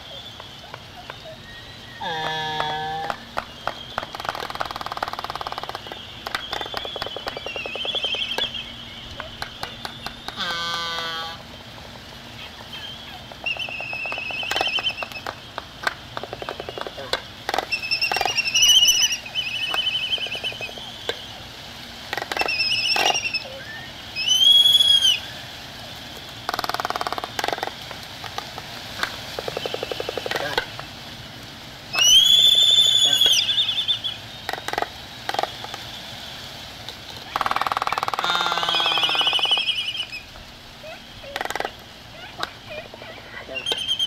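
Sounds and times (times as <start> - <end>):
albatross squealing calls: 1.2 - 3.2, 6.6 - 8.7, 10.3 - 11.4, 12.4 - 15.4, 16.4 - 20.9, 22.1 - 25.2, 31.9 - 35.5, 37.3 - 40.3, 43.4 - 44.0
albatross trilling calls: 2.0 - 3.3, 6.5 - 8.7, 9.4 - 11.5, 12.4 - 15.4, 16.2 - 20.9, 22.1 - 25.2, 31.9 - 35.6, 37.3 - 40.3, 40.9 - 44.0.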